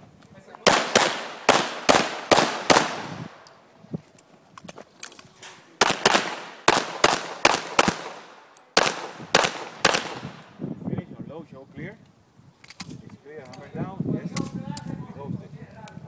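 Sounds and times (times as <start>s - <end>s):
pistol shots with echo: 0.6s - 3.4s, 5.8s - 10.5s.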